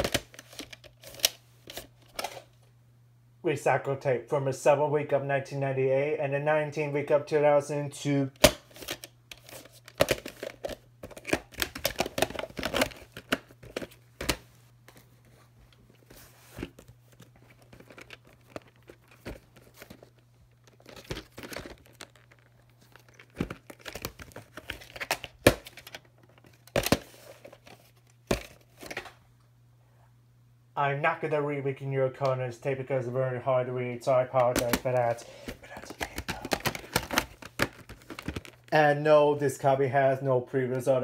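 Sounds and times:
plastic cases clicking and rattling: 0.0 - 2.5, 8.4 - 15.0, 16.0 - 29.1, 34.4 - 38.7
faint low hum: 0.0 - 41.0.

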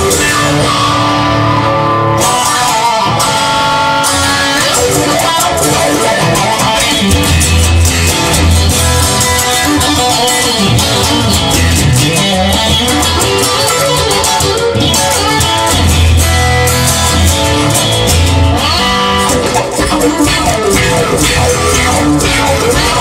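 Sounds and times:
instrumental rock music: 0.0 - 23.0.

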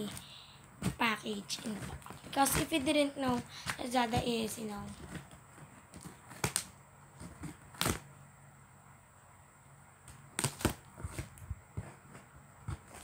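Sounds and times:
scissors snipping plastic: 0.0 - 8.0, 10.1 - 11.4.

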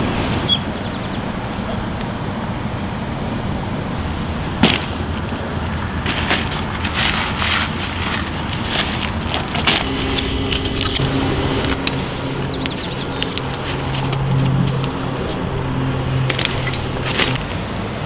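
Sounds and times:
low background rumble: 0.4 - 18.0
footsteps crunching on pebbles: 4.0 - 17.8.

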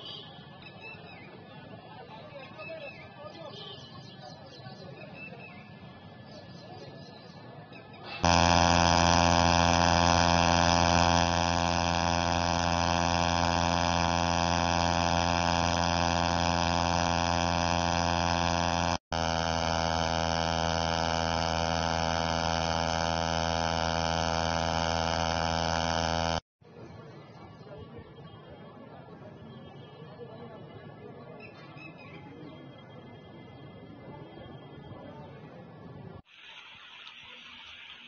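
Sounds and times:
loud machine drone: 8.1 - 26.5.

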